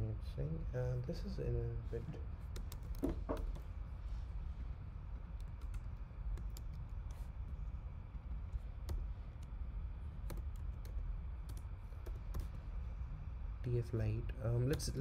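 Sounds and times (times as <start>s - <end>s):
low background hum: 0.0s - 15.0s
computer keyboard typing: 2.5s - 3.7s, 5.1s - 12.6s.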